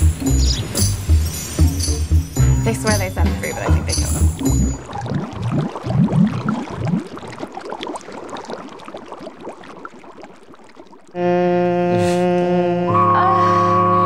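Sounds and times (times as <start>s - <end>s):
music with held tones: 0.0s - 4.8s, 11.2s - 14.0s
water bubbling and gurgling: 0.0s - 11.7s.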